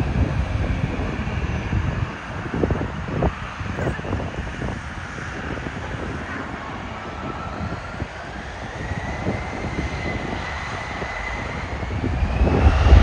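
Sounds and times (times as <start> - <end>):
jet engines whine rising: 0.0 - 13.0
low engine rumble: 0.0 - 13.0.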